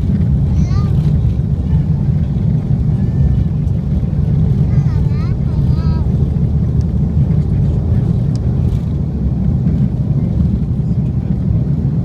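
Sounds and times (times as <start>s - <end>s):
aircraft engines rumbling: 0.0s - 12.0s.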